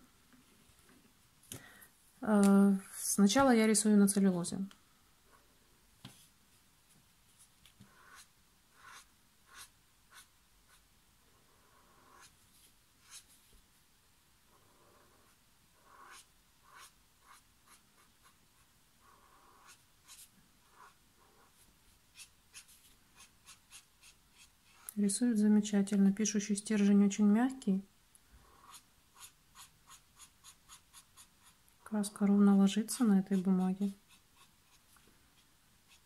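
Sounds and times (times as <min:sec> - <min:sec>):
brush pen scratching on paper: 0:07.4 - 0:10.9, 0:11.7 - 0:13.5, 0:15.0 - 0:25.0, 0:28.4 - 0:31.6, 0:32.8 - 0:36.0.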